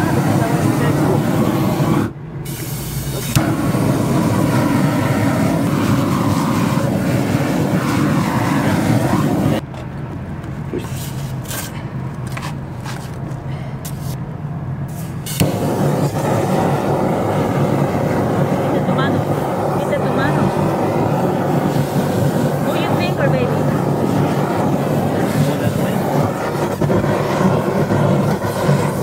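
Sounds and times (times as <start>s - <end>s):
propane torch roaring: 0.0s - 29.0s
trowel scraping roofing: 10.8s - 14.2s.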